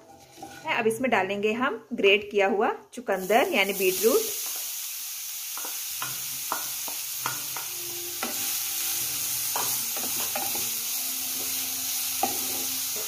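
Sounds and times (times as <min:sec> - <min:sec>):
wooden spatula scraping pan: 0:00.0 - 0:00.8
beetroot sizzling in oil: 0:03.2 - 0:13.0.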